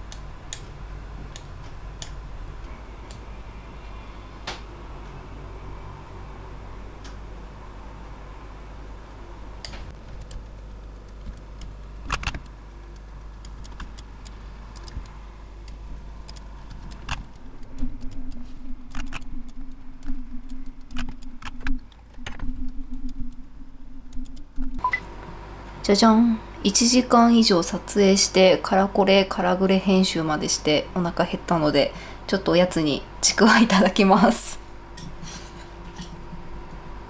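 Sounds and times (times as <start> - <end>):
low steady hum: 0.0 - 37.0
computer keyboard typing: 10.0 - 15.1, 16.2 - 24.8.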